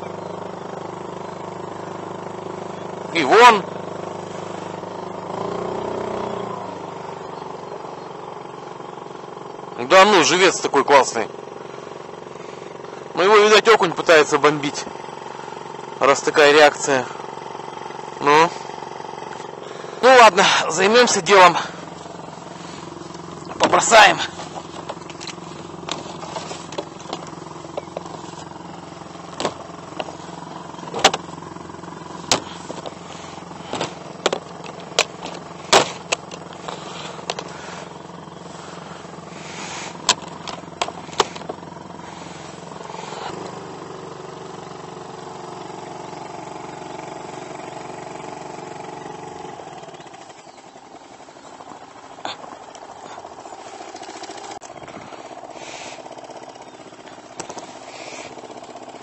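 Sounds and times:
small boat motor humming: 0.0 - 59.0
gear clicking and knocking: 23.1 - 28.6, 29.2 - 31.4, 32.1 - 37.9, 39.9 - 41.7, 51.6 - 59.0.

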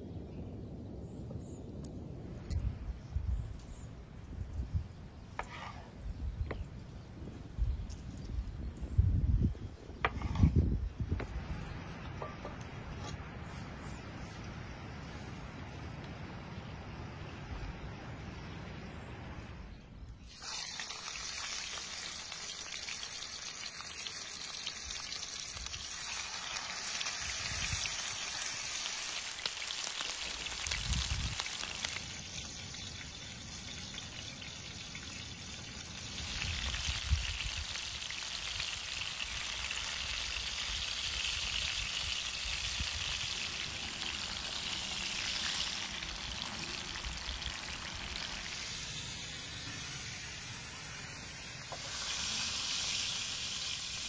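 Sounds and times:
food sizzling in frying pan: 20.3 - 54.0.

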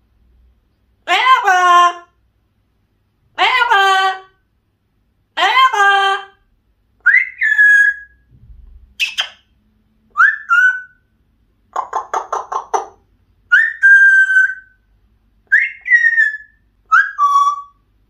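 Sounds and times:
parrot whistling: 7.0 - 8.2, 9.0 - 9.4, 10.1 - 11.0, 13.5 - 14.8, 15.5 - 17.8.

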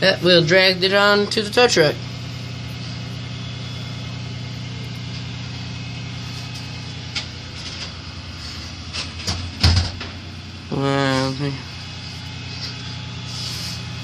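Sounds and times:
diesel engine idling: 0.0 - 14.0
thump: 9.3 - 10.1.

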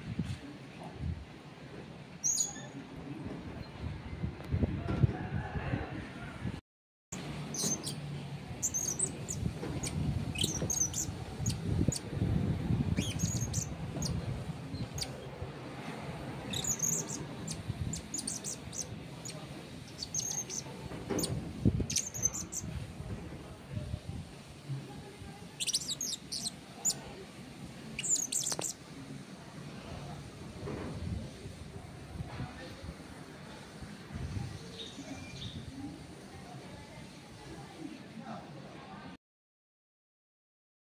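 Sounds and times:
parrot chirping and squeaking: 2.2 - 2.7, 7.5 - 8.0, 8.6 - 12.0, 13.0 - 15.2, 16.4 - 22.7, 25.6 - 27.0, 28.0 - 28.8.

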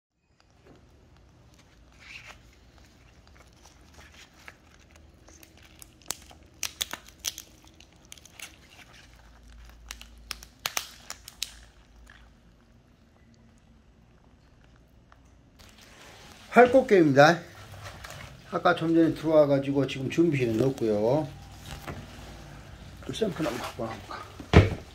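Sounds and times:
crab shell cracking: 1.0 - 12.8.

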